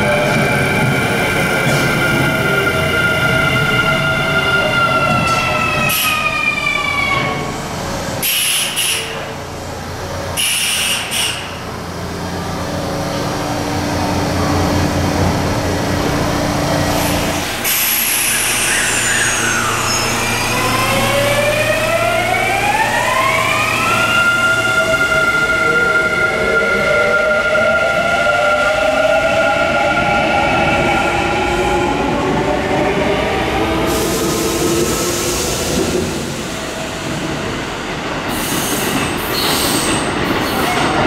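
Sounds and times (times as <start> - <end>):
electric train inverter whine: 1.0 - 37.2
air hisses: 8.2 - 9.2, 10.4 - 11.5, 16.9 - 20.2.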